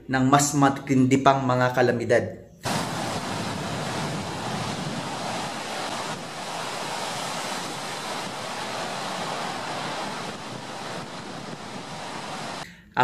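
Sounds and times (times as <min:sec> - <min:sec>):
heavy surf waves breaking: 0:02.6 - 0:12.6.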